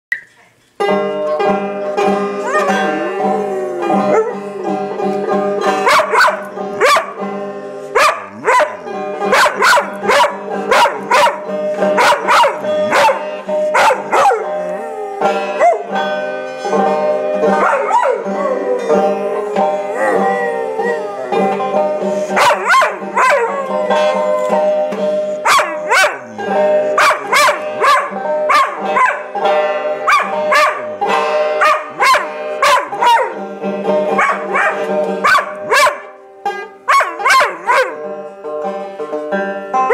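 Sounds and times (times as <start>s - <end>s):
plucked banjo music: 0.1s - 39.9s
dog howling: 2.3s - 7.2s, 8.0s - 16.0s, 17.4s - 29.2s, 36.9s - 38.1s.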